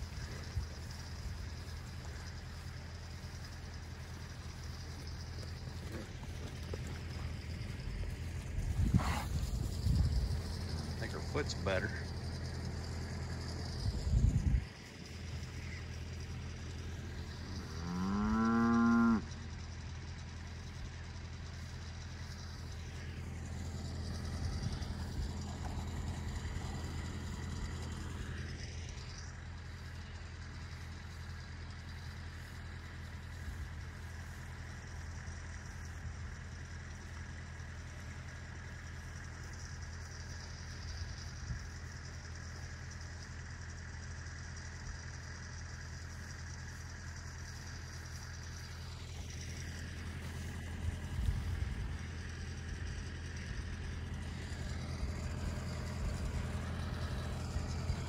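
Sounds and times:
steady low hum: 0:00.0 - 0:58.0
cow mooing: 0:17.6 - 0:19.3.

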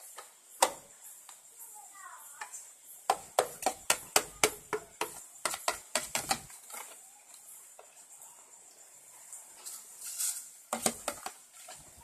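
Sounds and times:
metal spoon tapping plastic tub: 0:03.1 - 0:06.5.

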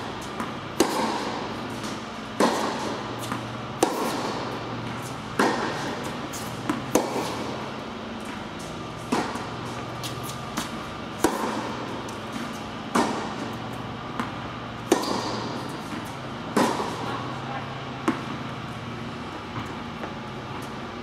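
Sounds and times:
racket striking tennis ball: 0:00.0 - 0:17.3, 0:18.0 - 0:18.6
steady low hum: 0:00.0 - 0:21.0
ball bouncing: 0:02.4 - 0:07.4.

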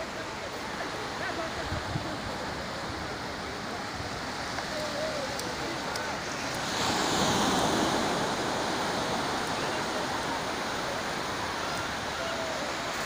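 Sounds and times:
surf washing onto sandy beach: 0:00.0 - 0:13.0.

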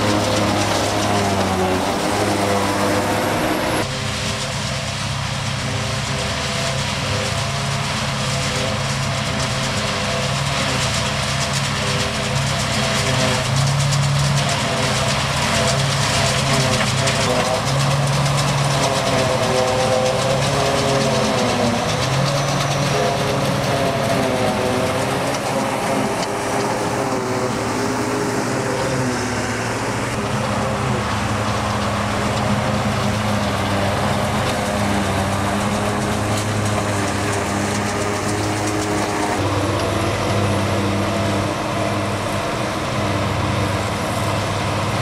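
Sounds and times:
heavy diesel engines running: 0:00.0 - 0:45.0.

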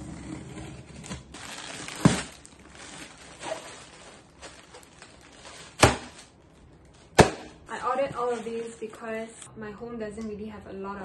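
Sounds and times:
plastic packing rustling: 0:01.0 - 0:09.0.

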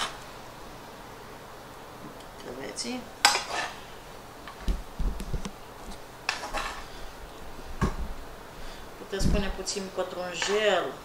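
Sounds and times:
metal tongs scraping a frying pan: 0:03.2 - 0:03.8, 0:06.3 - 0:07.0.

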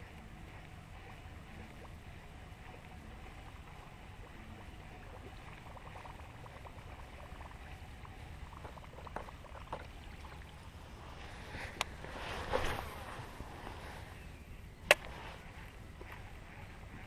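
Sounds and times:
faint ticks: 0:00.0 - 0:09.9
wind rumbling on microphone: 0:00.0 - 0:17.0.

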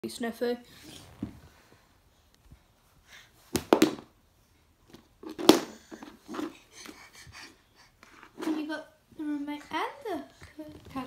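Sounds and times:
soft handling sounds: 0:08.0 - 0:11.0.

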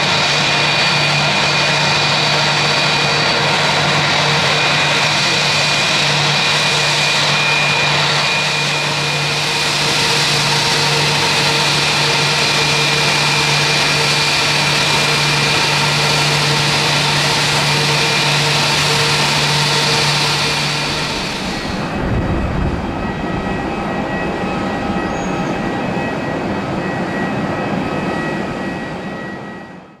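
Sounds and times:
jet engines idling whine: 0:00.0 - 0:30.0
low rumble: 0:20.4 - 0:26.0.

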